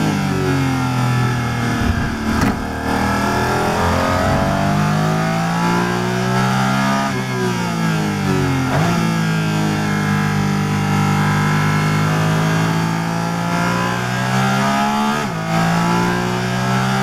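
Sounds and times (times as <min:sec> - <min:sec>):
car engine revving: 0:00.0 - 0:17.0
exhaust pops on downshift: 0:01.5 - 0:03.3.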